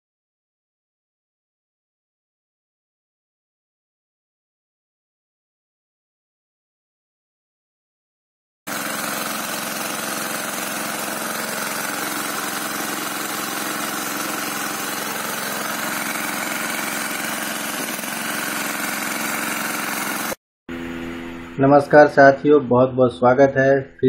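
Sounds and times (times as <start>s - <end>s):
water gushing onto ground: 8.7s - 20.4s
petrol water pump running: 8.7s - 21.6s.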